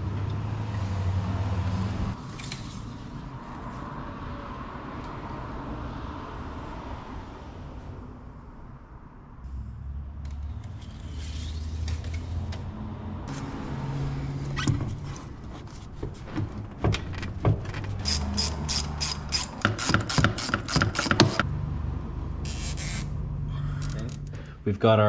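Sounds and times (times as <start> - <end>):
handling clicks and knocks: 14.5 - 21.5
ratchet wrench clicking rapidly: 18.0 - 21.4.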